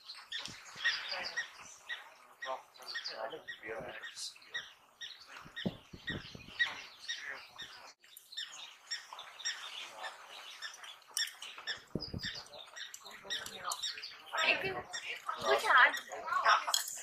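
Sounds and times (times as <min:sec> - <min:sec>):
wild dogs twittering chirps: 0:00.0 - 0:16.6
low thuds: 0:05.4 - 0:07.0, 0:11.8 - 0:12.4.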